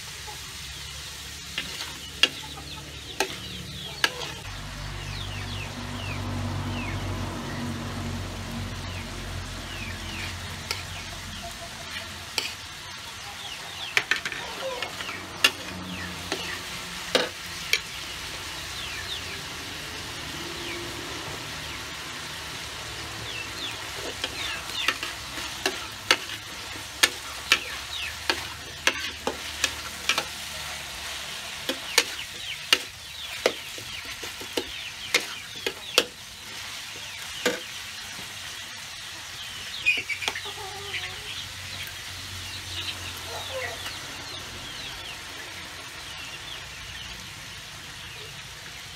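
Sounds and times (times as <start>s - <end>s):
vegetables sizzling in a wok: 0.0s - 48.9s
metal spatula scraping a wok: 1.1s - 4.5s, 10.1s - 13.2s, 13.9s - 18.3s, 23.6s - 38.4s.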